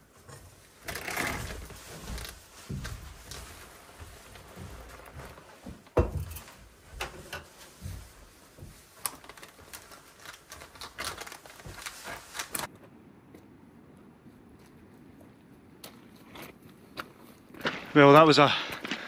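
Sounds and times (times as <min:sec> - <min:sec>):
plastic bag crinkling: 0:08.7 - 0:12.7.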